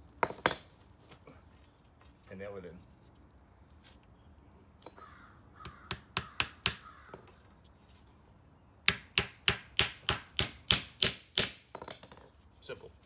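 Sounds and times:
hammer hitting nail into wood: 0:08.9 - 0:11.8.

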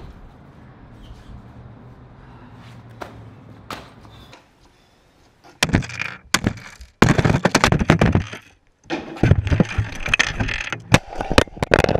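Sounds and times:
hard objects smashed and cracking: 0:05.6 - 0:11.9.

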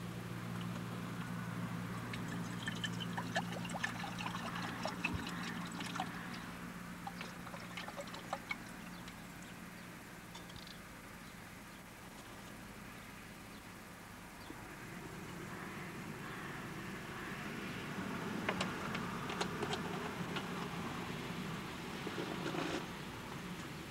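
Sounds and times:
water pouring into metal pan: 0:02.1 - 0:06.4, 0:07.1 - 0:08.9.

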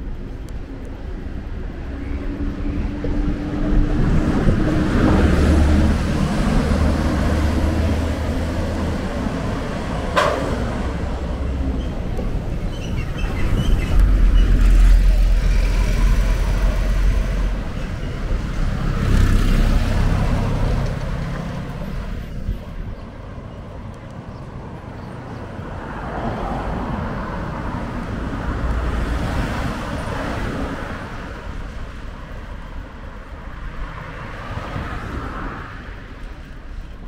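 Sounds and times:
heavy low engine rumble: 0:00.0 - 0:25.8
engine and tyre noise: 0:00.0 - 0:37.0
vehicles passing: 0:00.0 - 0:37.0.

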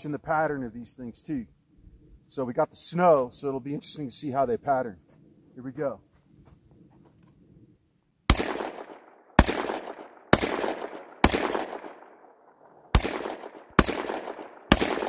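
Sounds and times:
shotgun shots echoing: 0:08.3 - 0:15.0.

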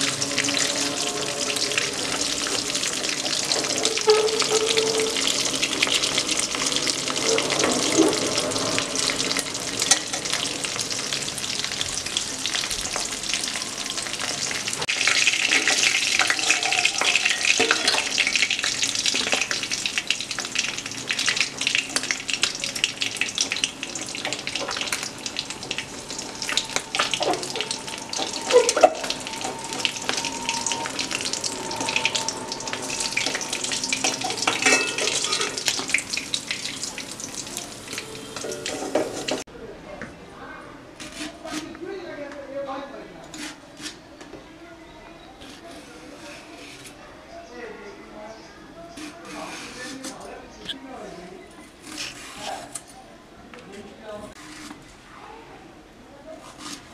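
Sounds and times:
fish sizzling in hot oil: 0:00.0 - 0:39.5.

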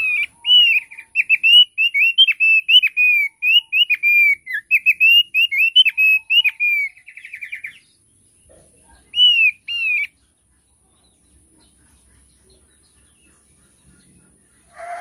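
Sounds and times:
bird whistled chirps and trill: 0:00.0 - 0:08.0, 0:09.0 - 0:10.2.

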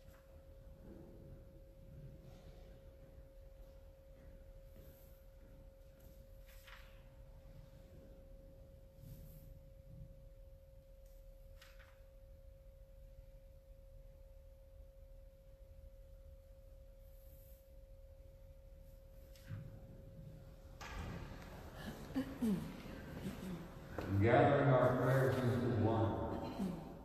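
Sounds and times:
faint steady whine: 0:00.0 - 0:27.0
faint brushing sounds: 0:04.2 - 0:08.2, 0:08.8 - 0:09.9, 0:16.9 - 0:20.6.

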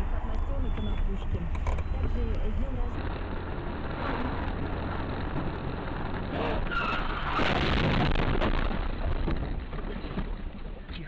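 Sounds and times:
car cabin road noise: 0:00.0 - 0:11.0
car skidding onto grass: 0:06.3 - 0:08.8.

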